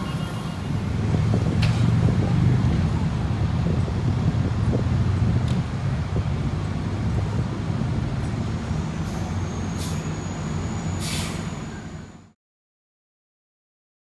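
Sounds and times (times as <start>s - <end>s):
diesel engine rumbling: 0.0s - 12.4s
brief hisses: 11.0s - 11.6s.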